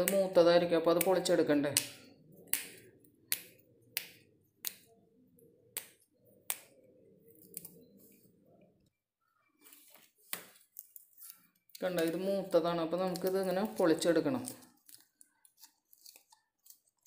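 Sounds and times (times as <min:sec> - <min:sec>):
beans snapping by hand: 0:00.0 - 0:04.9, 0:13.0 - 0:17.0.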